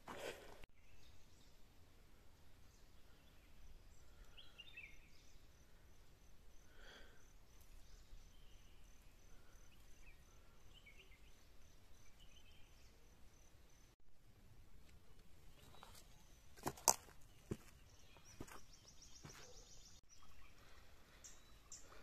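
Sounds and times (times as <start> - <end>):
bird chirps: 7.2 - 14.0, 17.2 - 22.0.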